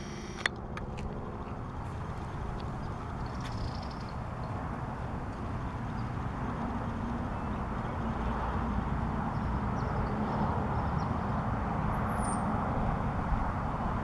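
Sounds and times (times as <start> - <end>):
low background rumble: 0.0 - 7.7.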